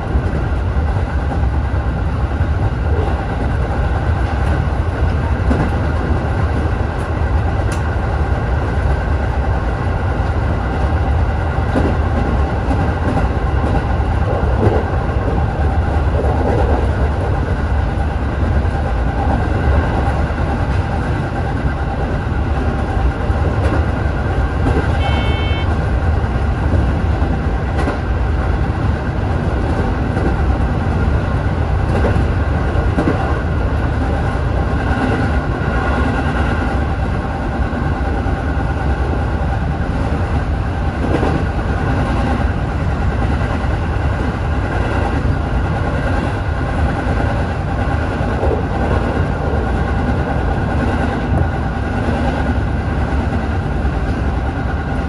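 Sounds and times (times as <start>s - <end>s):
train rumbling on rails: 0.0s - 55.0s
high beep: 25.0s - 25.7s.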